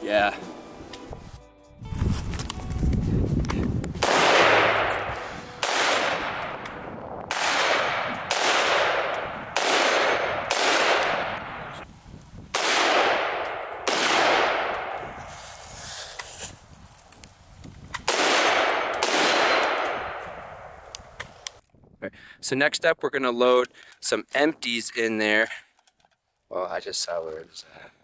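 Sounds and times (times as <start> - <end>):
rifle shots echoing: 4.0 - 11.8, 12.5 - 15.2, 18.0 - 20.8.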